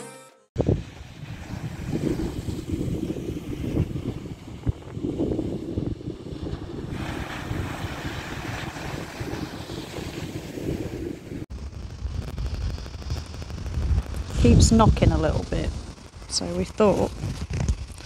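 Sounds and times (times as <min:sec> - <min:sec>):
waves breaking on shore: 0:00.6 - 0:11.5
wind buffeting microphone: 0:00.6 - 0:18.0.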